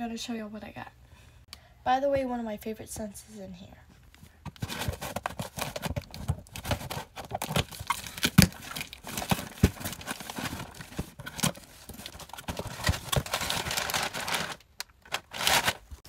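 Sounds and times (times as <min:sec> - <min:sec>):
plastic packaging crinkling: 0:04.6 - 0:16.0.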